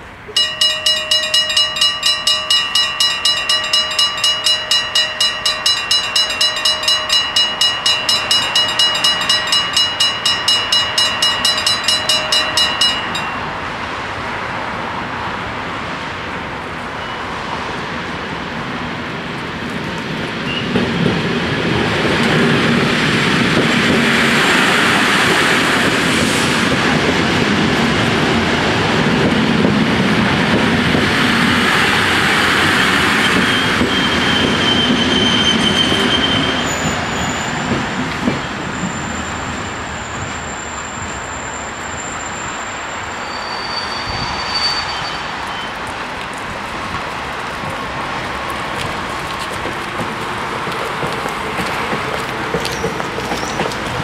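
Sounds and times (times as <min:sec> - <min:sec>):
electric train passing: 0:00.0 - 0:44.6
level crossing bells ringing: 0:00.3 - 0:14.1.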